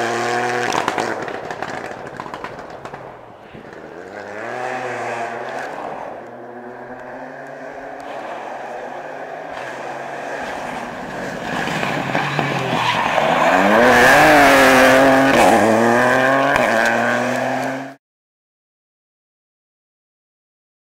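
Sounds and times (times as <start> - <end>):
rally car engine accelerating: 3.6 - 18.0
tyres scrabbling on gravel: 9.6 - 15.6.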